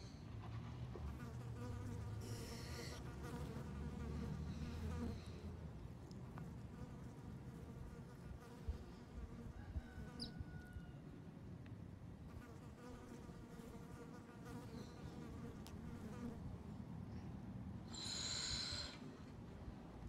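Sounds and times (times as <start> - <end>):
flying insect buzzing: 1.2 - 5.4.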